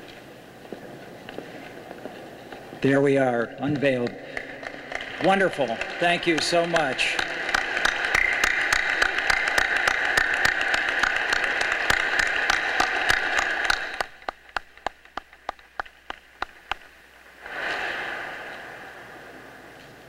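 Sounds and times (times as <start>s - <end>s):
audience applauding: 3.8s - 15.0s.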